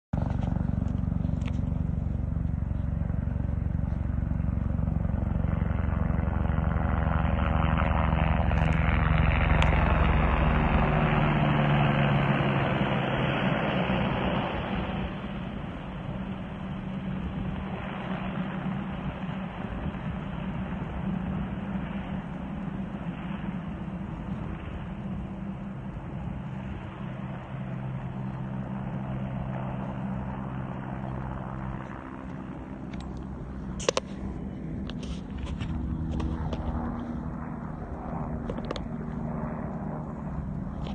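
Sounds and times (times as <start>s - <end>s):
helicopter rotor beating: 0.1s - 40.9s
helicopter engine tone: 0.2s - 40.9s.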